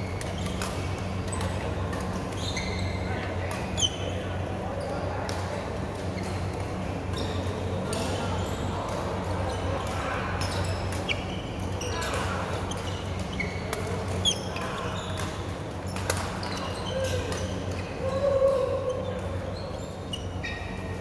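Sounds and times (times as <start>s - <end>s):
shoes squeaking on court: 0.0s - 4.2s, 5.8s - 18.0s, 19.1s - 21.0s.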